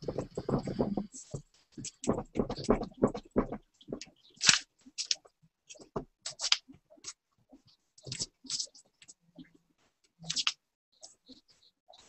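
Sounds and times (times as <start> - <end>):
pen scratching on paper: 0.0 - 4.0.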